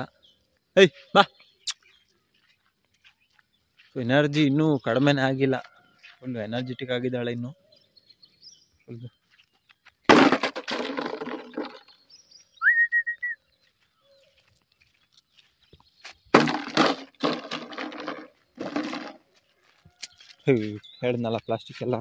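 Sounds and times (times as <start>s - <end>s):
short rising whistle: 12.6s - 13.4s
loud rustling noise: 16.3s - 19.3s.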